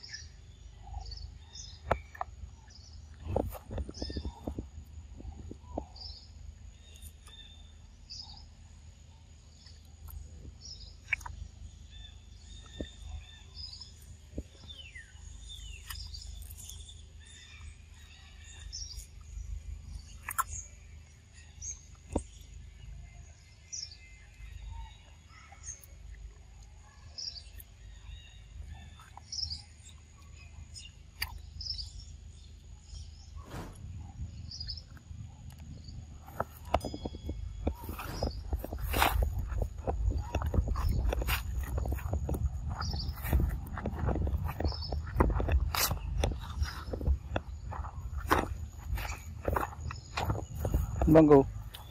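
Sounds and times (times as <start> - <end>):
birds chirping: 0.0 - 51.9
low rumble: 33.2 - 36.2.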